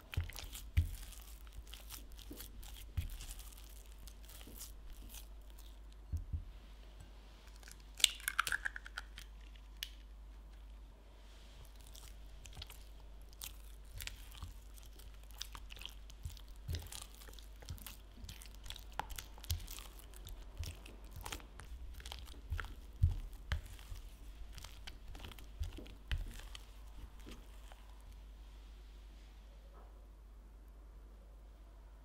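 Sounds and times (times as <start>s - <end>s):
spatula slapping wet dough: 0.0s - 6.6s, 11.5s - 28.0s.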